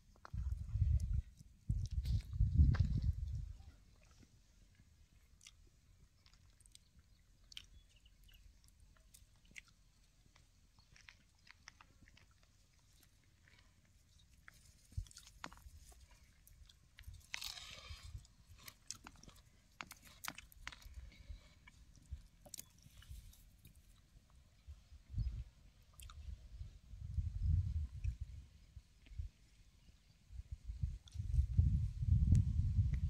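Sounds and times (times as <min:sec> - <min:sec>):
chewing: 0:00.1 - 0:24.1, 0:25.8 - 0:26.3.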